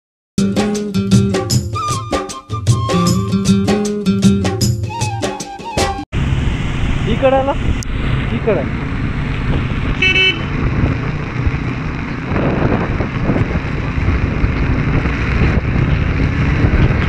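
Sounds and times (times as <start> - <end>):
road traffic rumble: 6.1 - 17.0
vehicle horn toot: 10.0 - 10.5.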